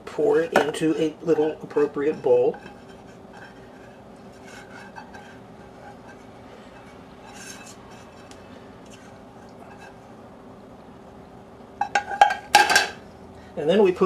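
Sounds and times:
saucepan scraping: 0.2 - 10.2.

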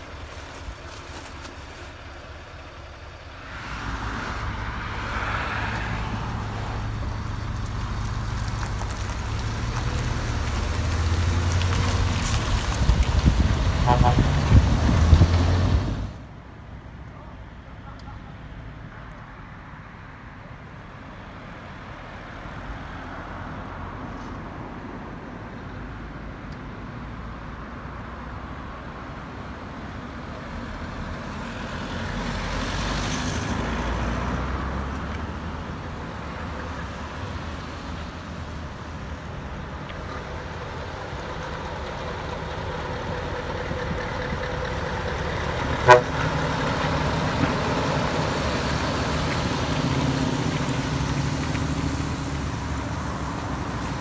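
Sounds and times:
truck diesel rumble: 0.0 - 16.3, 29.0 - 54.0
car driving past: 3.3 - 16.2, 31.0 - 38.0.

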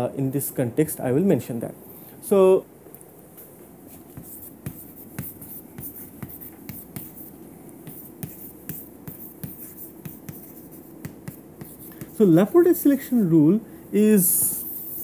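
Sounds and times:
chalk tapping and scratching: 3.9 - 13.2, 14.2 - 15.0.

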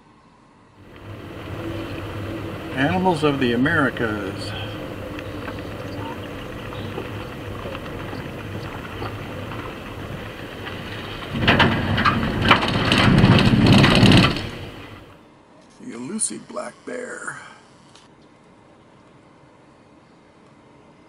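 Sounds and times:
car tyres on gravel road: 0.8 - 15.2
wheels rattling over metal grid: 0.8 - 15.2.

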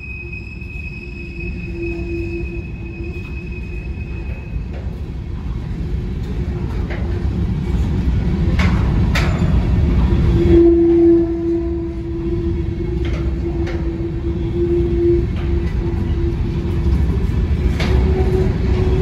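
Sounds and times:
high wheel squeal: 0.0 - 4.8, 10.3 - 17.0
train wheels rumbling on rail: 0.0 - 19.0.

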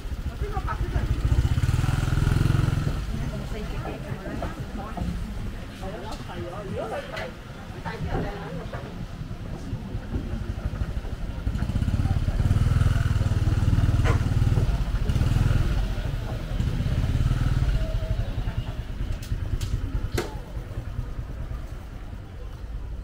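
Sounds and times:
motor scooter engine running: 0.0 - 3.7, 9.5 - 23.0.

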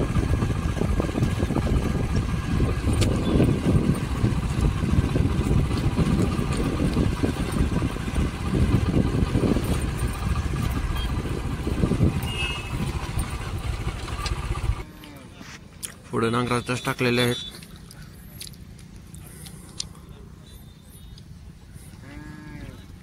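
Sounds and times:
wind buffeting microphone: 0.0 - 14.8.

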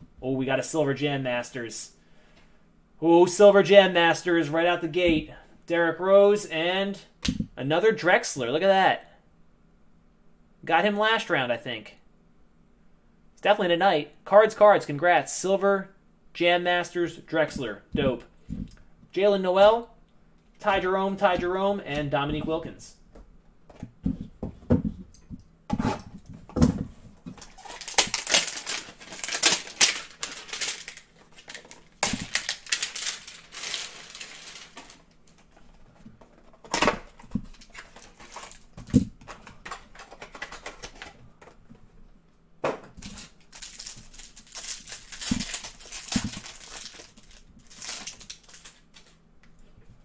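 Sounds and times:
plastic wrapper crinkling and tearing: 27.4 - 35.5, 37.4 - 38.8, 43.0 - 49.2.

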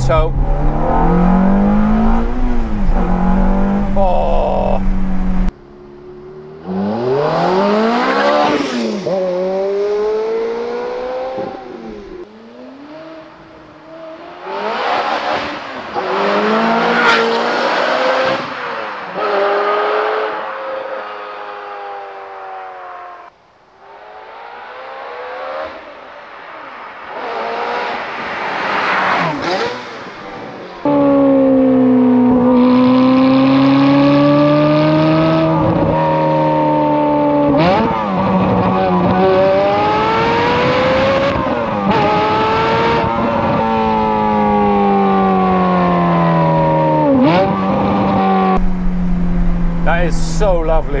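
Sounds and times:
car driving past: 0.0 - 5.5
loud engine revving: 0.0 - 5.5, 28.7 - 51.0.

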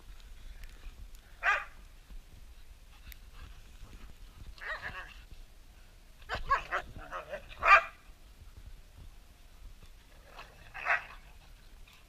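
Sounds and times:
dogs barking and yipping: 1.4 - 1.8, 4.6 - 5.2, 6.2 - 8.0, 10.3 - 12.0.

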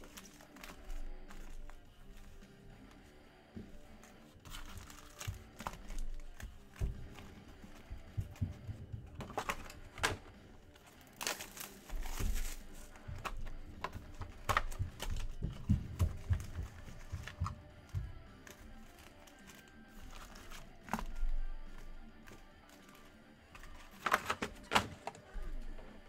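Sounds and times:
cardboard and wrapper crinkling: 0.0 - 26.0
taps and knocks: 5.2 - 10.3, 13.0 - 18.3.

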